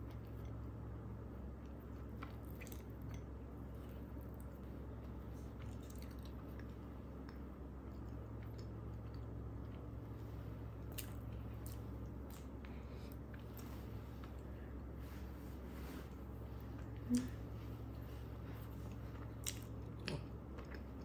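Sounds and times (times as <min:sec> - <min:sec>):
steady low hum: 0:00.0 - 0:21.0
bites and chewing: 0:01.7 - 0:09.9.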